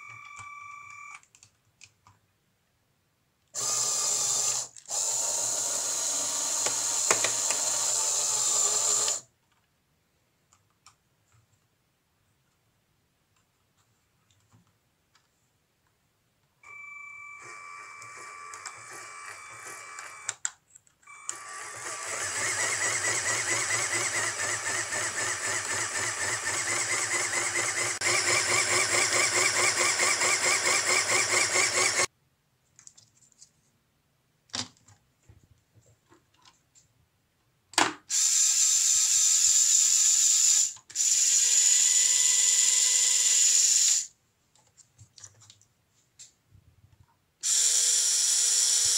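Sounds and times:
toy motor mechanism whirring: 3.6 - 9.3, 17.4 - 20.5, 21.1 - 32.1, 38.1 - 44.2, 47.4 - 48.9.

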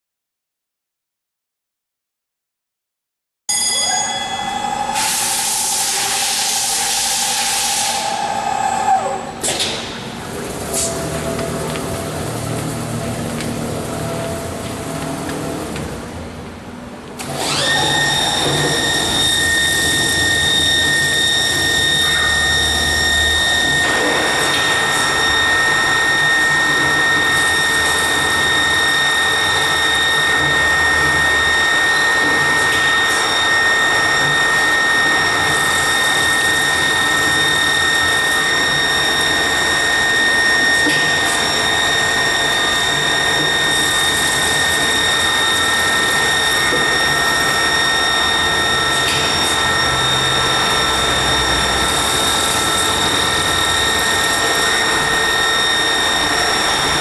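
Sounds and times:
drill spindle whine: 3.7 - 9.4, 17.2 - 57.0
burst of hiss: 5.0 - 8.2.

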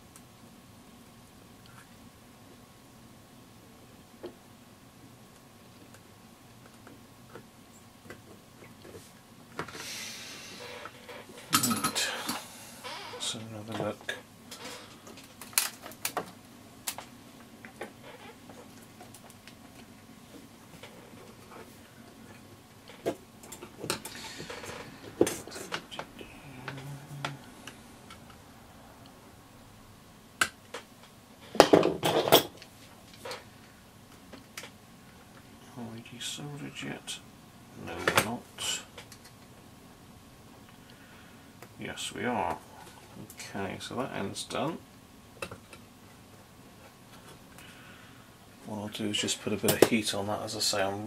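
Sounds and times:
soft hiss: 16.3 - 31.5, 32.6 - 45.1.

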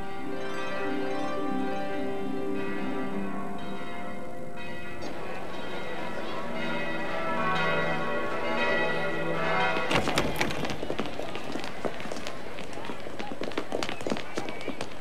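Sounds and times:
large church bells ringing: 0.0 - 11.0.

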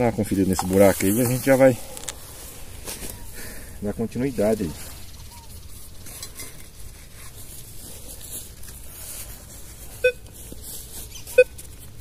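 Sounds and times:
metal detector beeps: 9.9 - 10.3, 11.2 - 11.6.

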